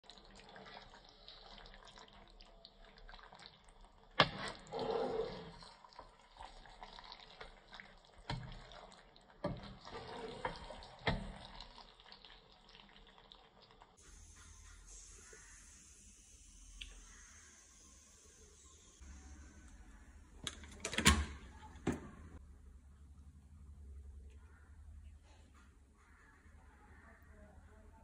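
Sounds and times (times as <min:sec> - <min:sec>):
spatula stirring in a pan: 0:00.1 - 0:15.7.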